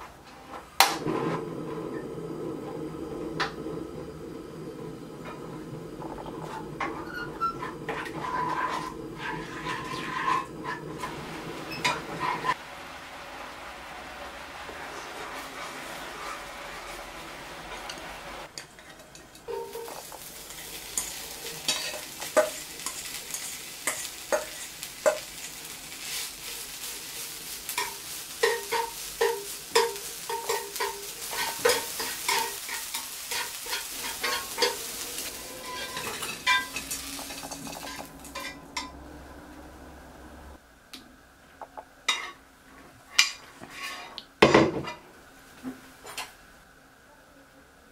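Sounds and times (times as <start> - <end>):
sizzling rustle of dried fish: 1.1 - 40.6
sauce sizzling in a frying pan: 4.0 - 39.9
wooden spoon stirring: 4.5 - 12.6, 14.7 - 39.9.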